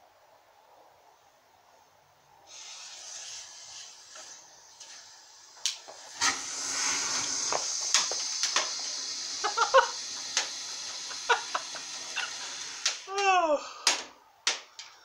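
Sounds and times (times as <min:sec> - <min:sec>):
firework hissing sparks: 0:02.5 - 0:13.2
firework sharp cracks: 0:05.7 - 0:13.2.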